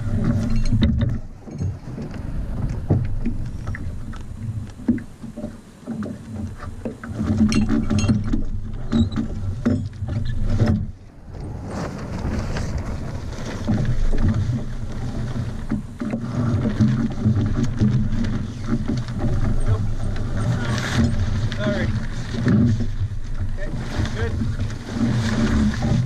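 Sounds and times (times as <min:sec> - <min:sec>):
knocks and clicks from rigging: 0:00.0 - 0:11.0, 0:13.6 - 0:26.0
sailcloth rustling: 0:00.0 - 0:26.0
water slapping against hull: 0:00.0 - 0:26.0.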